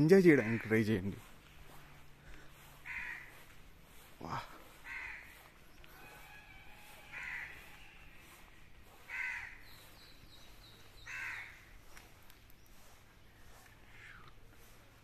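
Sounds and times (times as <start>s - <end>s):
crow cawing: 0.2s - 1.0s, 2.2s - 12.0s.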